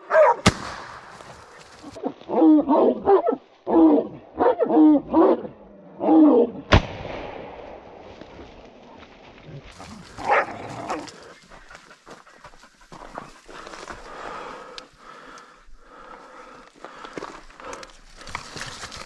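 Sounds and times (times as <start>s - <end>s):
dog barking: 0.0s - 0.4s, 2.6s - 3.4s, 4.4s - 5.5s, 10.2s - 11.1s
scuffling noises: 8.3s - 14.6s, 16.7s - 19.0s.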